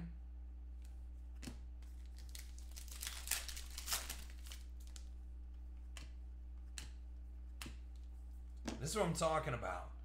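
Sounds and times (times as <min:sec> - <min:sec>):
steady low hum: 0:00.0 - 0:10.0
foil card pack crinkling: 0:01.9 - 0:05.1.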